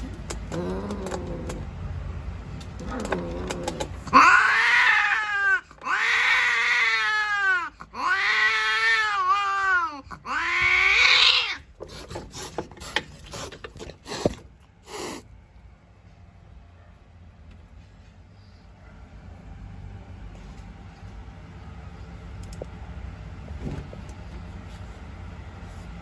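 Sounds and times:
cat yowling: 2.9s - 11.7s.

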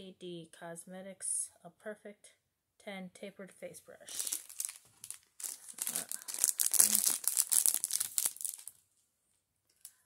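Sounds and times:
wrapper crinkling and tearing: 4.1s - 8.8s.

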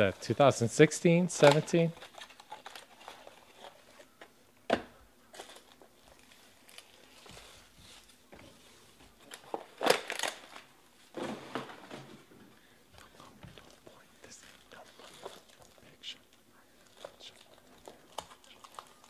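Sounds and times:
foil packs crinkling: 0.0s - 4.0s, 5.3s - 8.2s, 8.8s - 11.8s, 16.8s - 19.0s.

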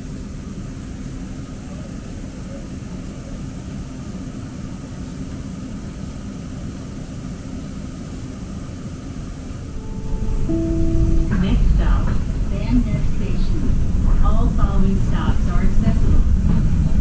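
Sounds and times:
rail car rumble and hum: 0.0s - 17.0s
faint high whine: 9.5s - 14.3s.

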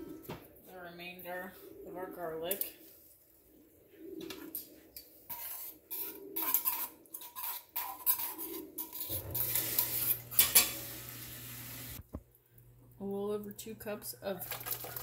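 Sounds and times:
metal tongs scraping a steel bowl: 5.3s - 10.9s.

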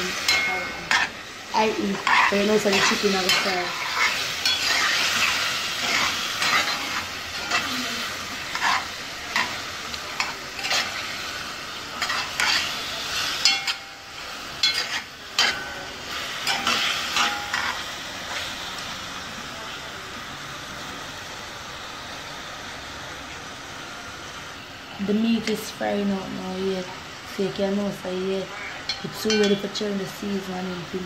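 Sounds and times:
chicken sizzling in a pot: 0.0s - 31.0s
spoon scraping against a pot: 1.9s - 7.7s, 8.4s - 11.1s, 12.0s - 12.7s.

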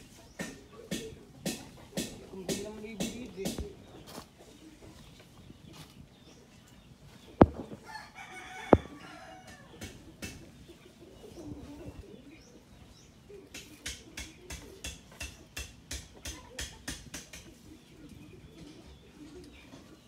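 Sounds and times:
sharp knocks: 7.4s - 7.9s, 8.7s - 9.0s
rooster crowing: 7.8s - 9.7s.

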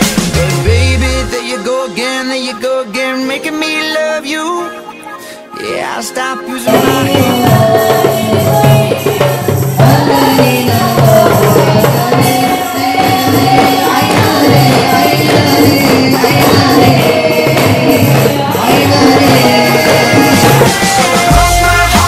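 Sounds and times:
hand drums beating a rhythm: 0.0s - 1.4s, 6.6s - 22.0s
voices singing a melody: 0.0s - 22.0s.

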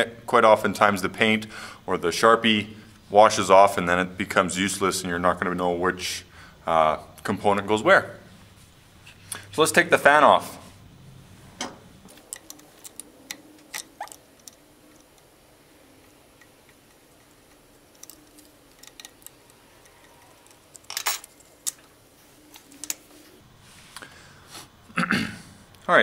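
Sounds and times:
screwdriver clicking and scraping metal: 12.1s - 15.3s, 16.0s - 21.9s.

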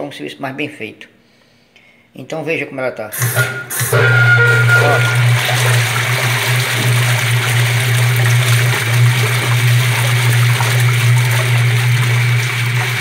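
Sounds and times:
washing machine motor hum: 3.2s - 13.0s
water sloshing: 4.1s - 13.0s.

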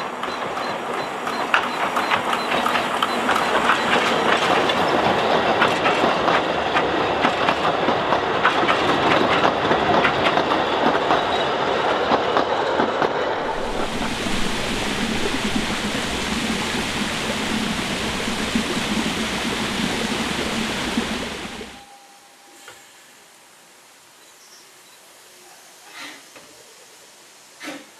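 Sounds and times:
train coaches clattering over rails: 0.0s - 16.0s
steady rushing hiss: 13.0s - 27.9s.

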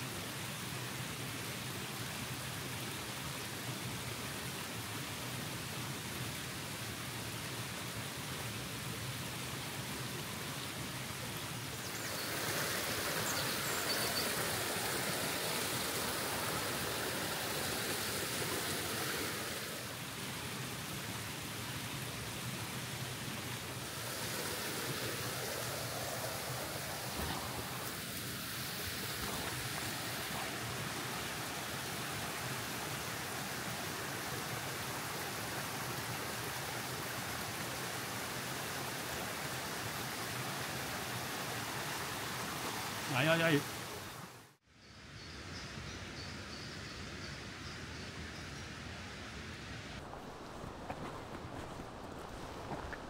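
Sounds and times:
fast-flowing stream rushing: 11.5s - 21.6s, 22.2s - 44.4s, 50.0s - 53.0s.

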